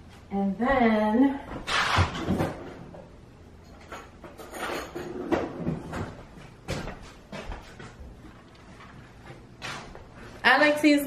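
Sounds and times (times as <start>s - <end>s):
kitchen things knocking and clattering: 3.7s - 6.2s.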